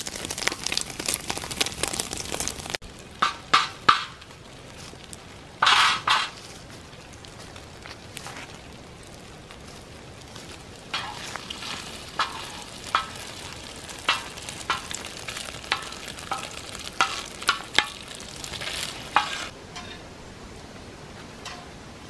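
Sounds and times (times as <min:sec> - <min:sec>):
food sizzling: 0:00.0 - 0:20.2
metal spatula scraping a pan: 0:05.6 - 0:06.4, 0:10.9 - 0:13.4, 0:15.7 - 0:20.1.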